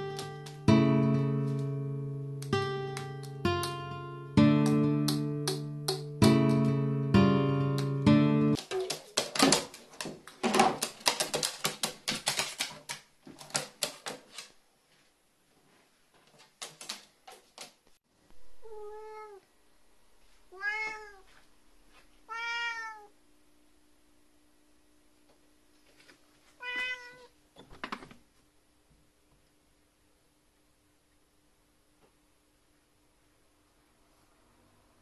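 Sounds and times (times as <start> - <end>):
crow pecking plastic bottle: 8.6 - 14.4
cat meowing: 18.5 - 19.4, 20.5 - 21.3, 22.3 - 23.1, 26.6 - 27.3.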